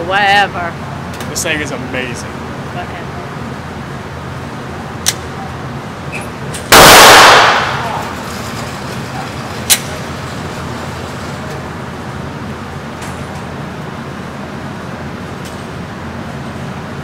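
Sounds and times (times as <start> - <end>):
handgun shot echoing: 6.7 - 8.0
faint sharp cracks: 6.7 - 8.2.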